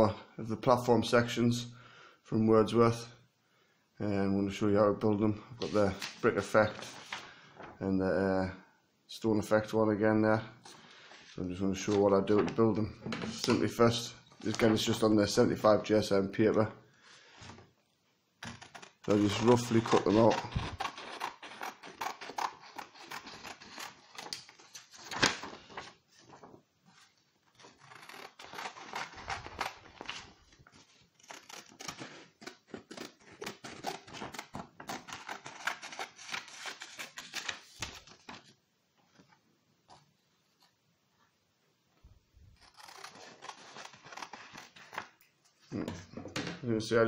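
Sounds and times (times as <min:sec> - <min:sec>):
paper rustling: 0:05.6 - 0:07.8, 0:10.6 - 0:15.1, 0:18.4 - 0:40.8, 0:42.6 - 0:45.2
scissors snipping paper: 0:18.4 - 0:24.6, 0:31.2 - 0:37.3, 0:42.6 - 0:45.1.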